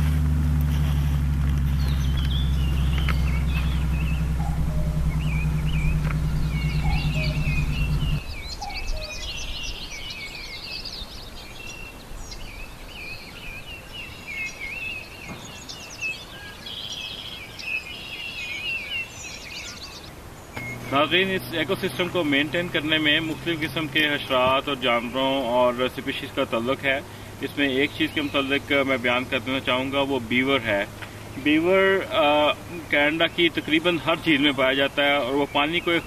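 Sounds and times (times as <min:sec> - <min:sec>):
low hum: 0:00.0 - 0:08.6
songbirds singing: 0:00.0 - 0:36.0.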